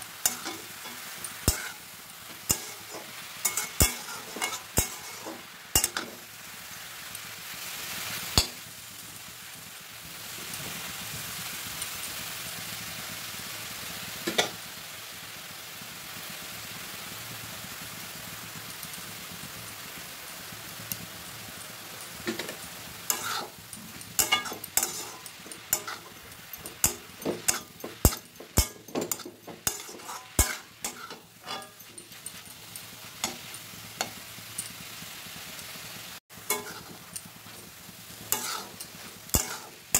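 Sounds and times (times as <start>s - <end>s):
spatula scraping a wok: 0.0s - 6.5s, 22.2s - 35.2s, 36.4s - 39.9s
greens sizzling in a wok: 0.0s - 39.9s.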